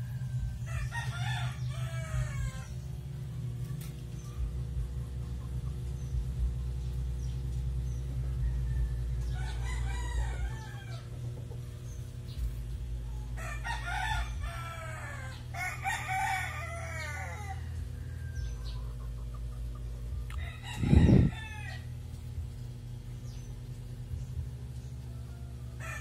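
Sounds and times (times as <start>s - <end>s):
rooster crowing: 0.0s - 2.8s, 8.2s - 11.1s, 13.1s - 18.8s, 20.3s - 22.0s, 25.0s - 26.0s
steady low hum: 0.0s - 26.0s.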